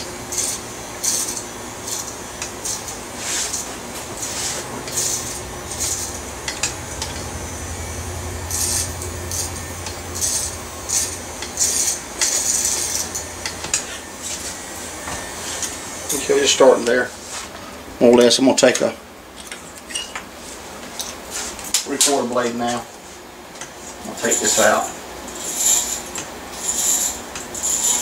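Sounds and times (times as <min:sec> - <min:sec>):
hair clippers humming: 0:00.0 - 0:17.1
clippers cutting hair: 0:00.3 - 0:14.0.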